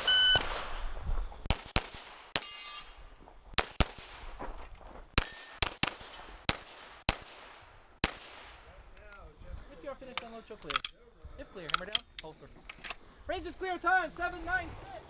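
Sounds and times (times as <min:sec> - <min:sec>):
pistol shots: 0:01.5 - 0:02.9, 0:03.6 - 0:04.2, 0:05.2 - 0:08.6.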